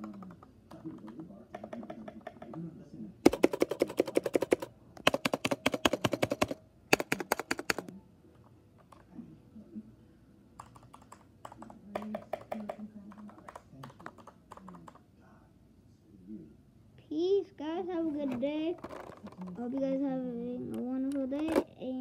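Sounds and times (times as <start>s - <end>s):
mechanical keyboard typing: 0.0s - 2.6s, 3.3s - 7.9s, 10.6s - 15.0s.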